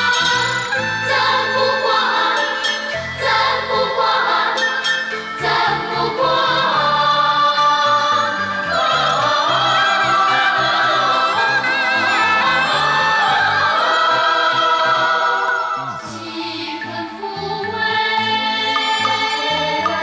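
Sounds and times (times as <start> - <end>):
choir singing with instruments: 0.0 - 20.0
sharp percussive strikes: 18.7 - 20.0.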